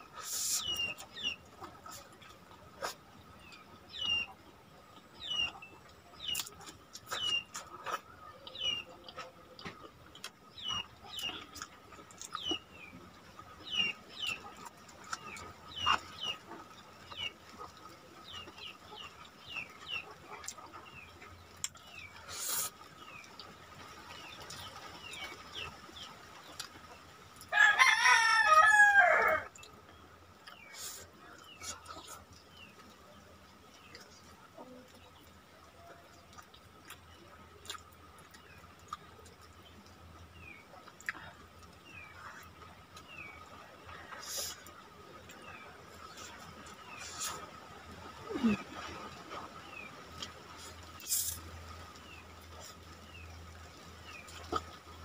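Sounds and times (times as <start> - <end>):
clicks and smacks of eating: 5.4 - 12.7, 13.3 - 23.6, 26.4 - 26.8, 33.7 - 43.2, 54.0 - 54.9
rooster crowing: 27.5 - 29.5.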